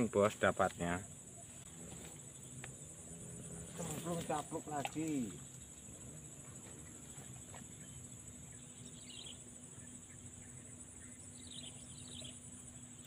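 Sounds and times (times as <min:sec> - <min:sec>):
insects buzzing: 0:00.0 - 0:13.0
bird twitter: 0:07.6 - 0:12.5.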